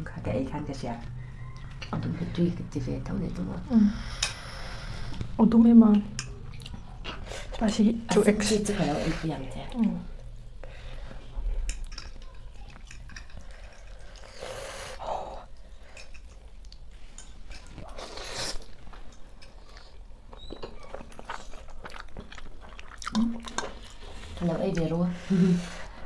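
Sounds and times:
people chewing and slurping: 1.0 - 2.7, 3.7 - 26.0
forks clicking against plates: 11.6 - 13.9.

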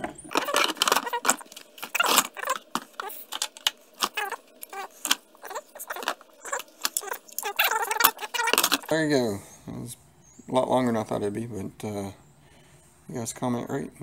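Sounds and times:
plastic panels clattering: 0.0 - 9.0.

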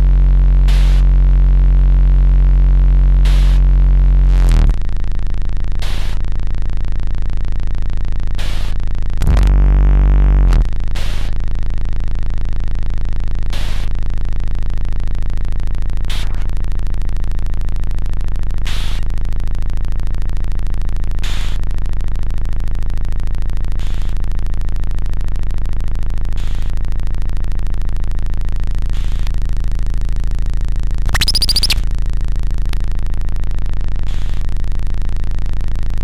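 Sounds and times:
bright warbling burst: 31.1 - 31.8.

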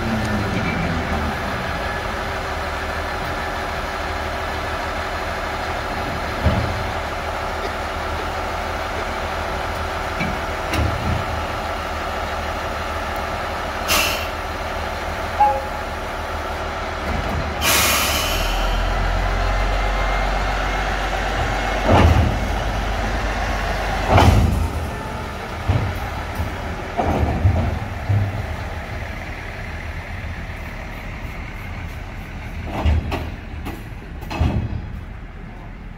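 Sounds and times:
diesel engine idling: 0.0 - 35.9
air hiss: 13.9 - 14.4, 17.6 - 18.8.

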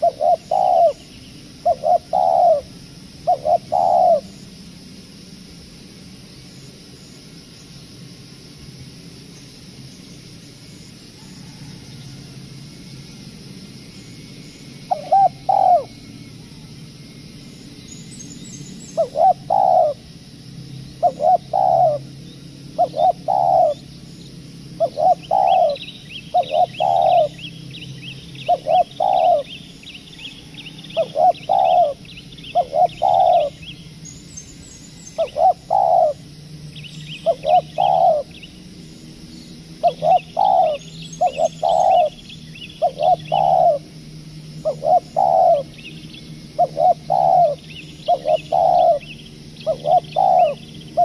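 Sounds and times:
dove cooing: 0.0 - 4.4, 14.9 - 15.9, 19.0 - 20.0, 21.0 - 22.1, 22.7 - 23.8, 24.8 - 27.5, 28.4 - 29.6, 30.5 - 33.8, 35.2 - 36.3, 37.1 - 38.5, 39.8 - 44.0, 44.6 - 45.9, 46.5 - 51.0
small birds chirping: 0.0 - 4.9, 13.8 - 20.1, 20.7 - 51.0.

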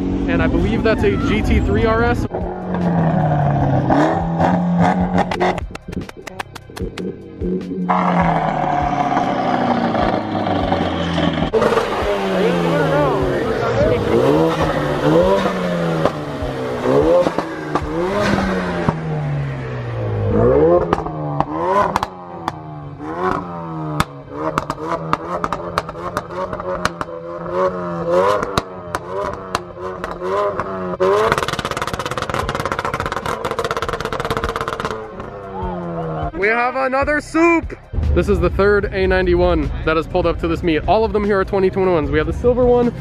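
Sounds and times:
car engine revving: 0.0 - 43.0
exhaust pops and crackles: 1.8 - 13.2, 14.0 - 19.6, 20.2 - 36.4.

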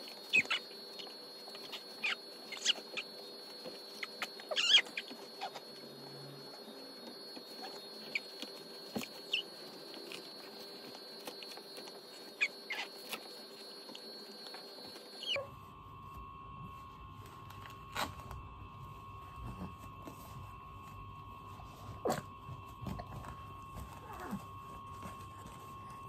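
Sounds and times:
diaper crinkling and rustling: 0.0 - 15.5
faint steady hum: 0.0 - 26.0
short squeaks: 1.5 - 3.1, 4.0 - 5.7.

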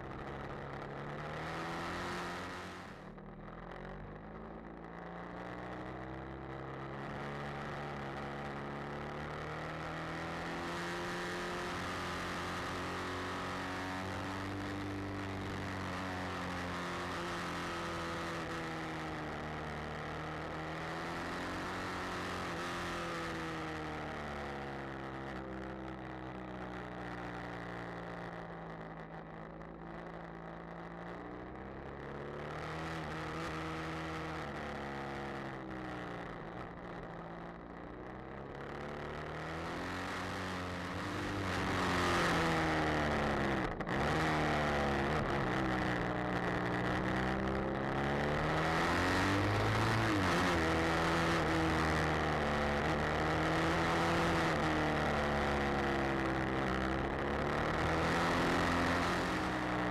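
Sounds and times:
motorcycle engine revving: 39.2 - 59.9.

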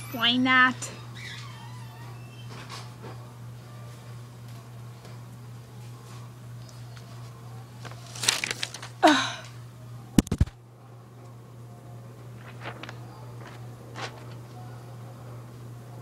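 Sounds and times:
falling squeak: 0.0 - 2.9
paper rustling: 6.9 - 9.2, 10.2 - 10.5, 12.4 - 14.6
knocks on microphone: 10.2 - 10.6.

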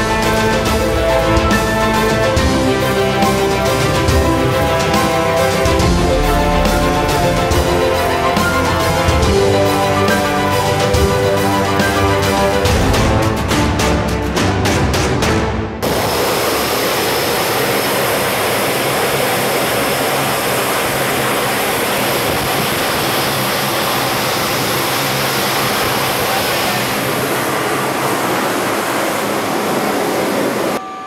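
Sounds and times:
turboprop engines droning: 0.0 - 31.0.

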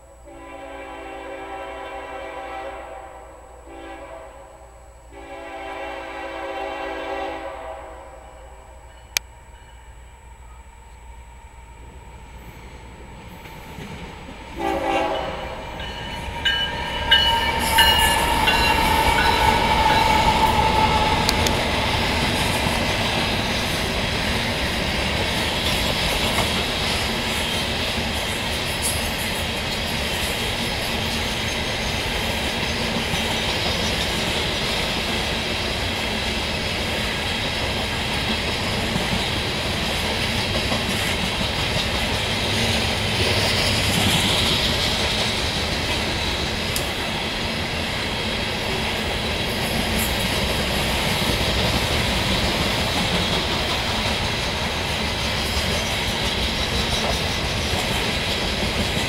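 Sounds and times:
freight train wheels rumbling: 3.8 - 59.0.

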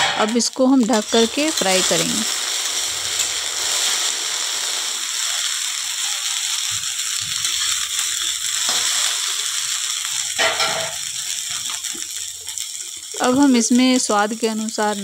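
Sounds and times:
vegetables sizzling in hot oil: 0.0 - 15.0
metal spatula scraping pan: 10.3 - 11.6.

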